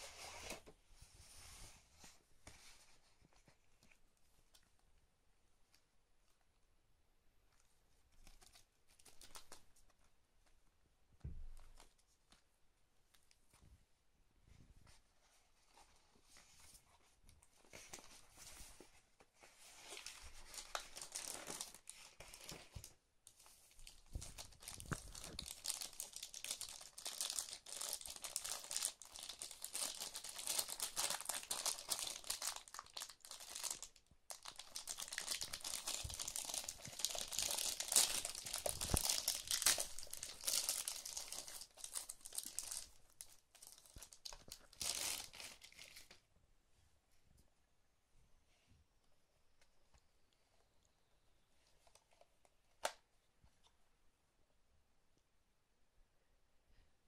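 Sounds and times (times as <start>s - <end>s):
paper rustling and crinkling: 14.8s - 46.2s.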